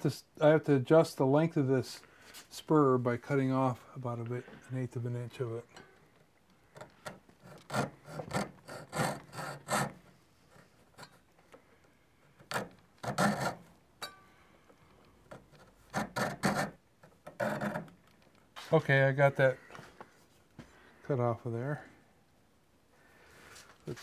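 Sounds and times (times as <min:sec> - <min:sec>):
saw rasping through wood: 0:07.4 - 0:10.0, 0:15.9 - 0:16.8.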